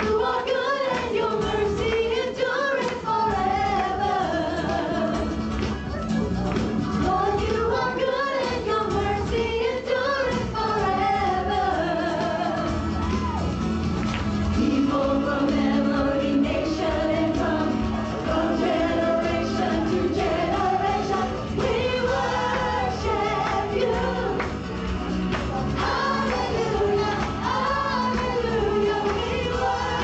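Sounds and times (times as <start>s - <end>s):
women singing: 0.0s - 5.7s, 6.8s - 13.3s, 14.5s - 24.7s, 25.7s - 30.0s
live band playing: 16.8s - 29.0s.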